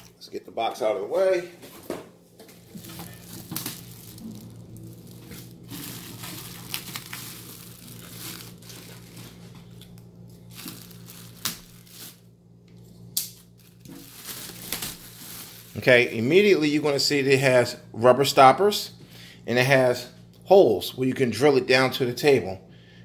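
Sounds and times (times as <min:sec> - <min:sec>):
low hum: 0:02.0 - 0:18.3
packaging crinkling and rustling: 0:02.4 - 0:12.3, 0:13.3 - 0:16.1.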